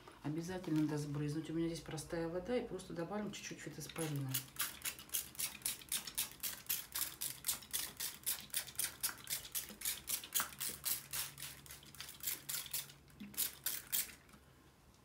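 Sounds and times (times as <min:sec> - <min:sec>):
spray bottle squirts: 0:03.9 - 0:14.3.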